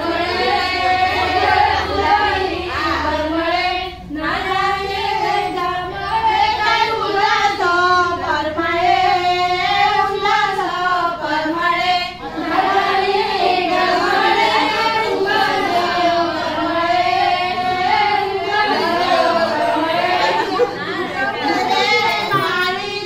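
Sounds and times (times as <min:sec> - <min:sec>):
women singing together: 0:00.0 - 0:23.0.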